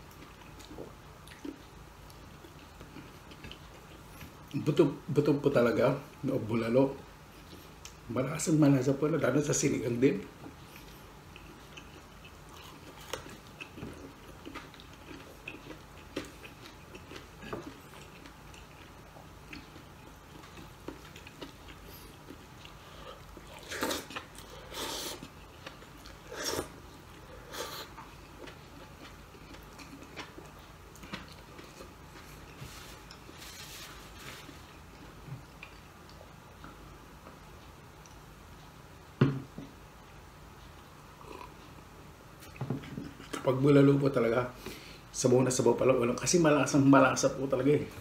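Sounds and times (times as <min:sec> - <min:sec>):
man chewing: 0:00.0 - 0:04.7, 0:10.4 - 0:39.2, 0:40.0 - 0:43.5
paper napkin rustling: 0:32.6 - 0:34.7.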